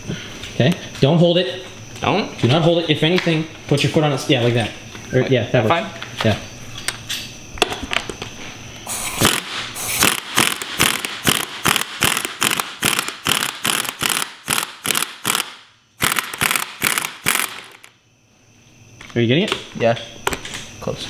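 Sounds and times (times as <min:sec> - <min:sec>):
pneumatic impact wrench hammering: 0:08.9 - 0:18.0.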